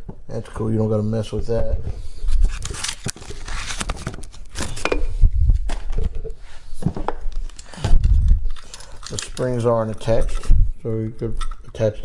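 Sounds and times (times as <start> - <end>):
rustling cardboard and plastic: 2.2 - 4.9
metal parts clicking and knocking: 8.4 - 10.6, 11.2 - 12.0.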